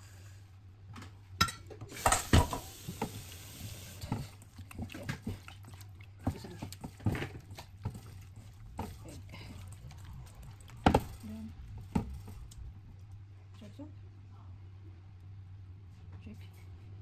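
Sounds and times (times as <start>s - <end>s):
wet squelching: 3.9s - 11.3s.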